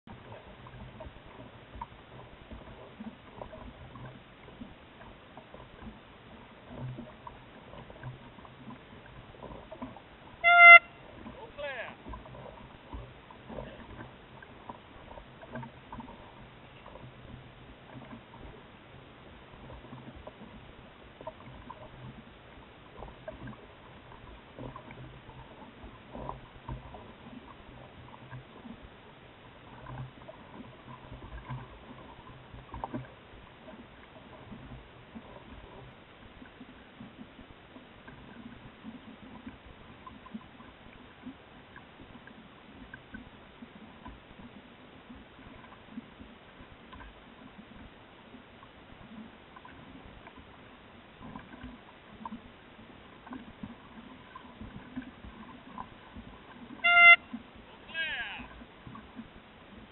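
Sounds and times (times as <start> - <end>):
water splashes: 0.1 - 59.9
water slapping against boat hull: 49.0 - 59.9.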